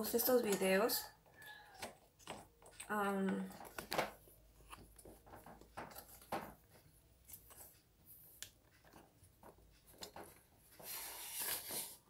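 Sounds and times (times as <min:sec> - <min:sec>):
faint handling clicks and rustles: 0:01.8 - 0:12.0.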